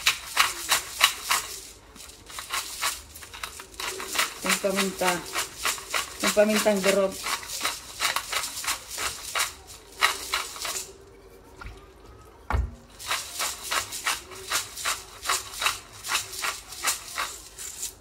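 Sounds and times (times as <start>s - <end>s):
pepper grinder clicking: 0.0s - 10.9s.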